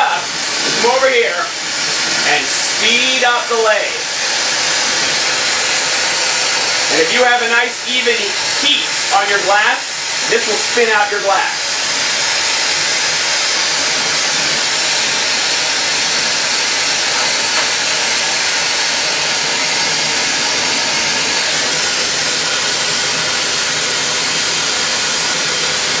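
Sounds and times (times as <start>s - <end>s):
torch flame hissing: 0.0s - 26.0s.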